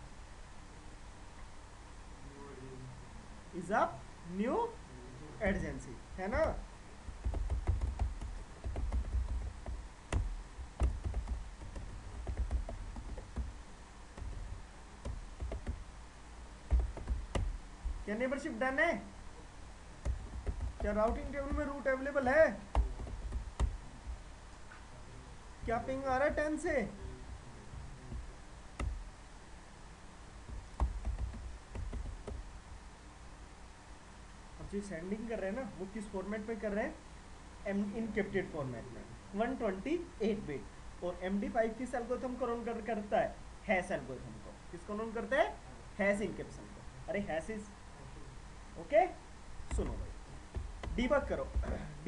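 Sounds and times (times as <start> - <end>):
low background rumble: 0.0 - 52.0
keyboard typing clicks: 7.2 - 13.6, 14.2 - 15.8, 20.0 - 21.7, 28.8 - 29.0, 30.5 - 32.4.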